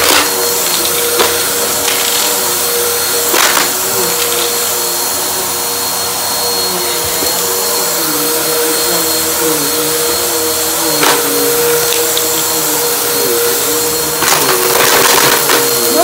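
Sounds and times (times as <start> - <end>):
debris crackling in vacuum: 0.0 - 4.8
vacuum cleaner running on a rug: 0.0 - 16.0.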